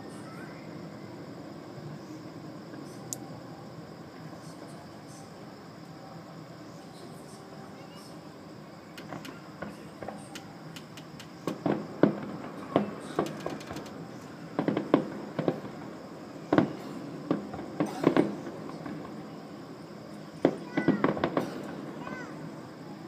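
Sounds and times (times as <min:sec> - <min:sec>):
distant fireworks bangs: 0:09.0 - 0:19.5, 0:20.1 - 0:23.0.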